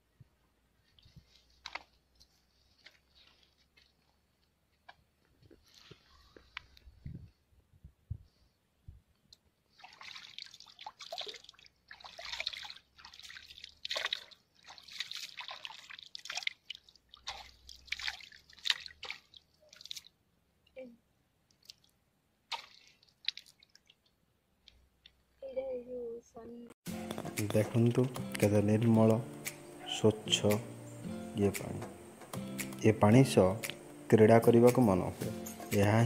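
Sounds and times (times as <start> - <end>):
water splashing by hand: 9.7 - 20.2, 22.5 - 24.2.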